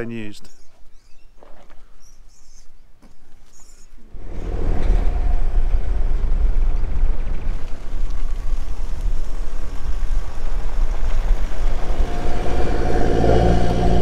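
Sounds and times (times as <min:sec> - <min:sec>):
vehicle rumbling: 0:04.0 - 0:14.0.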